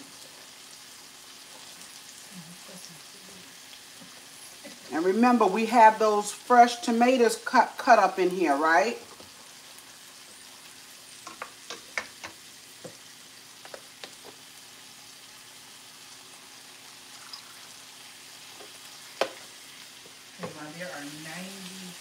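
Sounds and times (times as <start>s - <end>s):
sauce sizzling in pans: 0.0s - 22.0s
spoon and tongs tapping pans: 11.2s - 13.0s.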